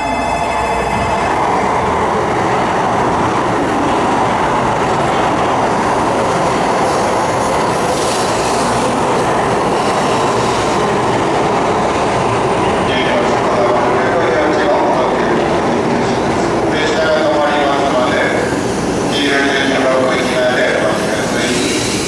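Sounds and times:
train wheels rushing: 0.0 - 22.0.

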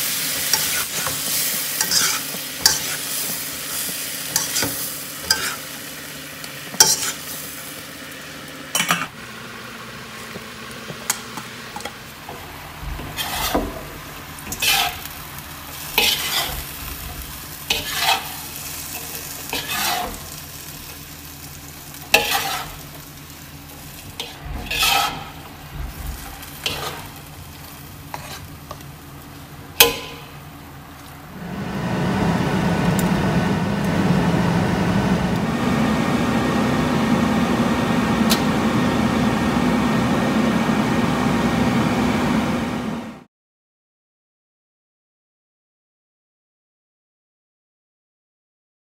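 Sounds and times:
food sizzling in a wok: 0.0 - 43.2
spatula scraping and knocking pan: 0.3 - 5.6, 6.7 - 7.3, 10.4 - 15.1, 15.8 - 20.4, 22.1 - 22.9, 24.0 - 27.3, 28.0 - 28.8.

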